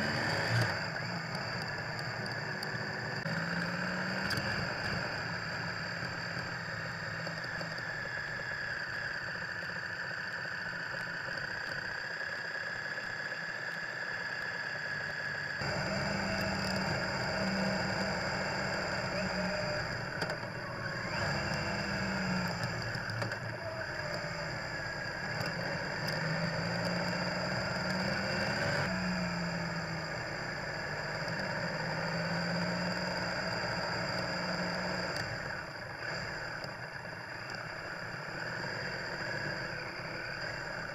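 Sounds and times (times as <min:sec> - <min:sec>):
motorcycle engine running: 0:00.0 - 0:40.9
road noise: 0:00.0 - 0:40.9
steady high whine: 0:00.0 - 0:40.9.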